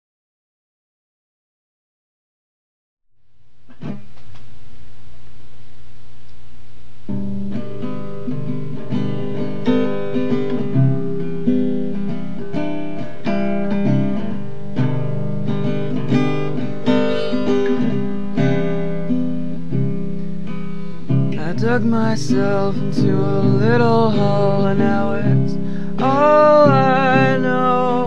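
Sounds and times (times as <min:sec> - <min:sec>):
acoustic guitar picking: 0:07.0 - 0:28.0.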